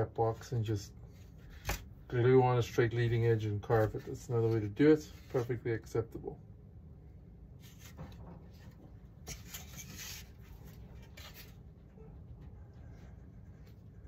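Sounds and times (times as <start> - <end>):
scratching and rubbing on wood: 7.6 - 11.7.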